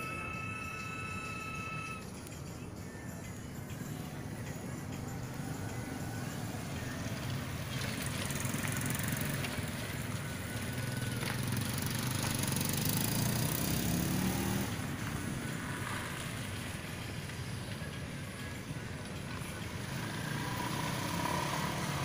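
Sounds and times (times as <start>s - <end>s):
small motorcycle engines: 0.0s - 22.0s
motorcycle accelerating close by: 7.0s - 16.7s, 19.7s - 22.0s.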